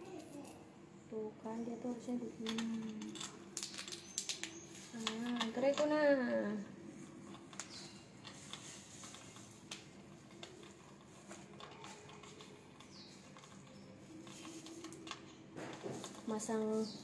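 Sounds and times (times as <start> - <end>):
plastic parts clicking and tapping: 2.4 - 6.1, 7.2 - 16.5.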